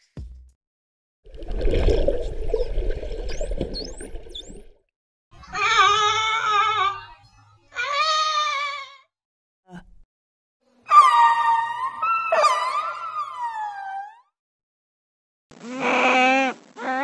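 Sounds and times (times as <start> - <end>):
underwater rushing water: 1.3 - 4.8
dolphin whistles: 2.5 - 4.6, 10.9 - 14.1.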